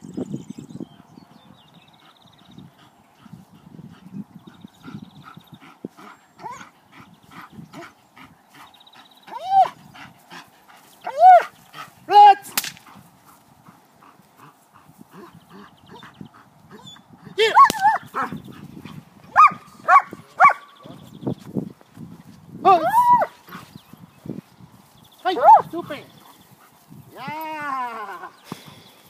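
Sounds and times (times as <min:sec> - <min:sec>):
dog yelping whines: 0:22.8 - 0:23.3.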